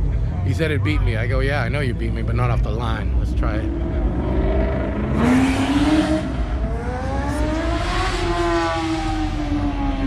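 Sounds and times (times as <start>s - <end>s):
car engine accelerating hard: 3.4s - 10.0s.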